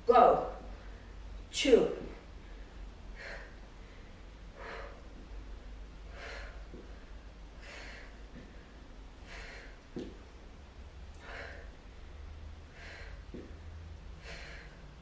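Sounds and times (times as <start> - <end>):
woman breathing out hard: 3.1 - 5.2, 6.1 - 7.0, 7.6 - 9.8, 11.2 - 11.8, 12.7 - 13.6, 14.2 - 14.9
soft taps: 9.9 - 10.2.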